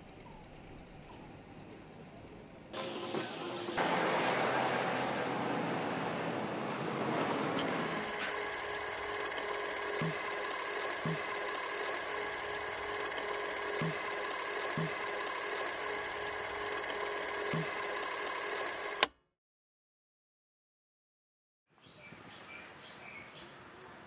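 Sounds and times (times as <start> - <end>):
film projector clatter and whir: 2.8 - 5.3, 7.6 - 19.1.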